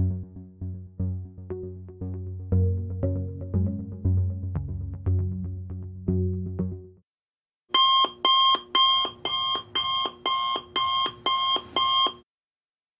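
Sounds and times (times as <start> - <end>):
alarm clock ringing pulses: 7.8 - 12.2.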